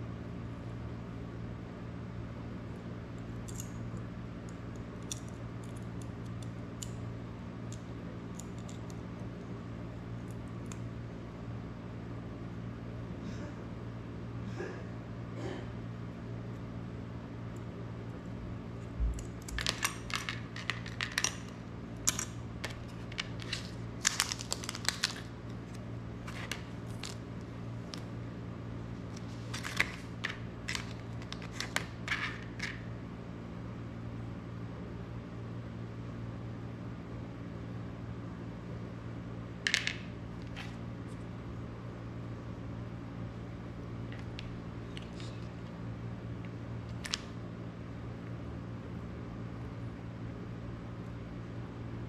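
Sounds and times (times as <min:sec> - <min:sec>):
steady low hum: 0:00.0 - 0:52.0
plastic packaging crinkling: 0:22.1 - 0:28.0, 0:29.2 - 0:31.9.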